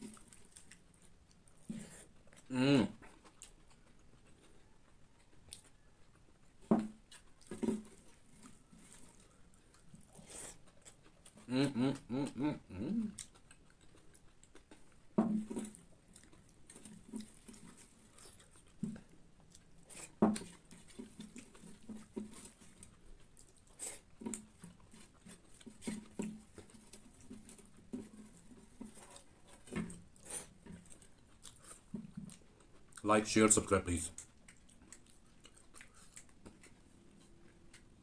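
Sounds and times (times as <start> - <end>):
person chewing food: 0.0 - 38.0.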